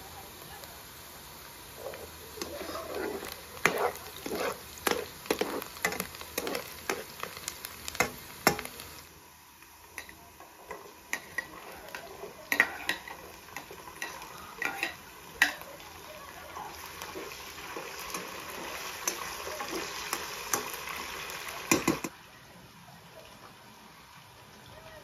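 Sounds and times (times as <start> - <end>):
metal ladle scraping pot: 1.8 - 7.3, 10.7 - 15.7.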